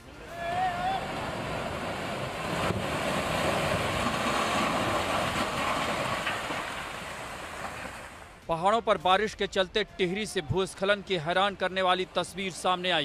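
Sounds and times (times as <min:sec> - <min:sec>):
rockfall rumbling: 0:01.0 - 0:08.3.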